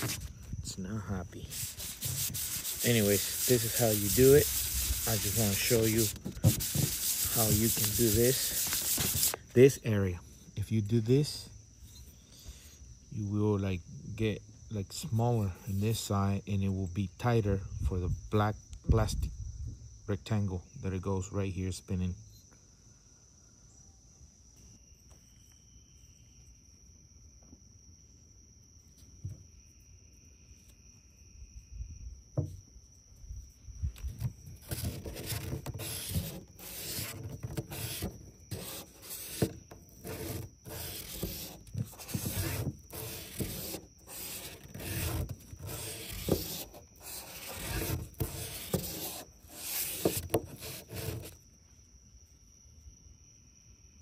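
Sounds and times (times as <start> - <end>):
metal rubbing on sandpaper: 0.0 - 0.3, 1.4 - 9.4, 34.6 - 51.4.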